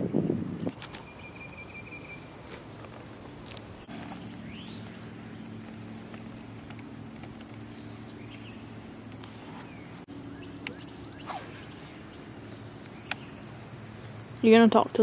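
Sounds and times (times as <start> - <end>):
high insect drone: 0.0 - 15.0
low steady hum: 0.0 - 15.0
bird chirps: 1.0 - 2.4, 3.6 - 5.6, 7.2 - 13.6.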